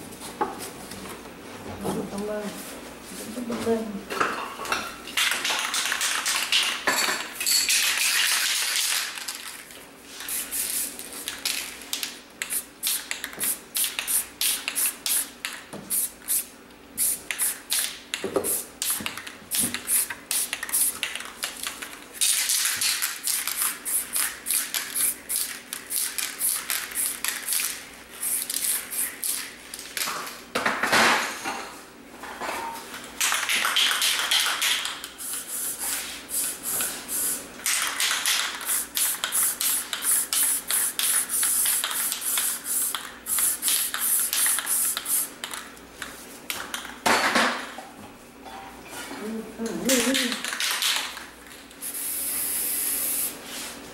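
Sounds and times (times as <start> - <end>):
spray paint can hissing: 10.2 - 11.4, 12.4 - 15.3, 15.9 - 17.9, 18.5 - 21.1, 22.2 - 29.4, 33.8 - 45.3, 51.8 - 53.4.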